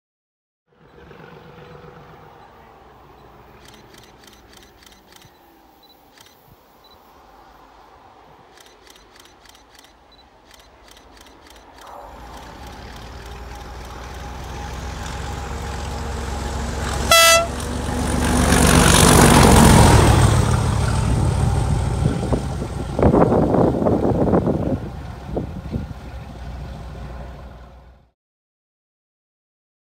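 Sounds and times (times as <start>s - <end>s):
diesel locomotive engine under power: 0.7s - 5.3s, 8.7s - 28.1s
locomotive horn blast: 13.4s - 18.9s.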